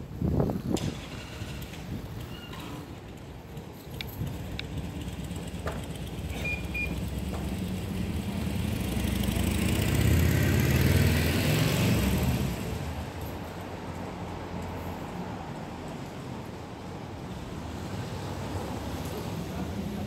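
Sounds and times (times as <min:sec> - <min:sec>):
city traffic noise: 0:00.0 - 0:20.0
vehicle driving past: 0:04.7 - 0:13.0.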